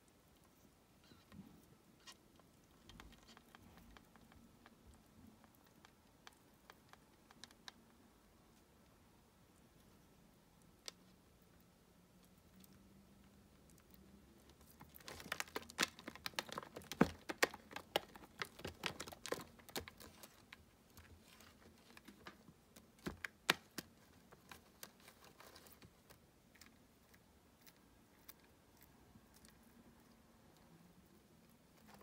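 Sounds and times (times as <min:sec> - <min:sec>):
claws clicking on plastic: 0:14.4 - 0:28.5.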